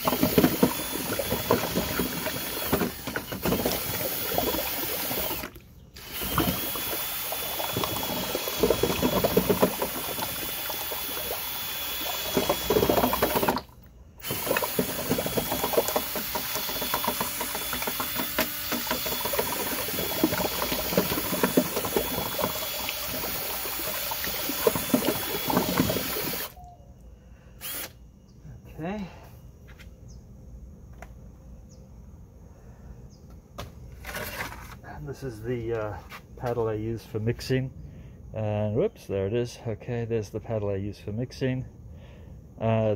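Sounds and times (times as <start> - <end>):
cement slurry sloshing and scraping: 0.0 - 26.5, 34.0 - 34.9
paddle mixer motor whine: 0.0 - 26.7, 27.6 - 28.0.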